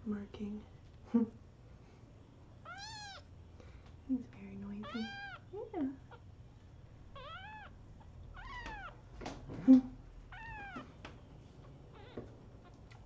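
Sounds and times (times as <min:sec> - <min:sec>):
kitten mewing: 0:02.6 - 0:03.3, 0:04.8 - 0:05.4, 0:07.2 - 0:09.0, 0:10.3 - 0:10.9.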